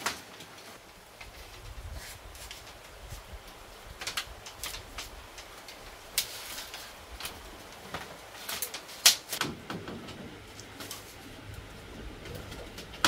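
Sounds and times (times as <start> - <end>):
bamboo rustling scrape: 0.0 - 9.4, 10.6 - 11.5
bamboo strips clicking: 2.3 - 13.0.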